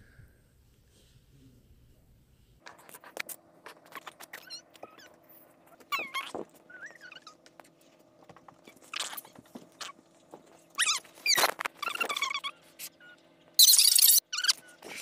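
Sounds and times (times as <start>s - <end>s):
faint steady hum: 0.0s - 15.0s
high squeaky animal calls: 3.1s - 7.7s, 8.6s - 10.0s, 10.8s - 15.0s.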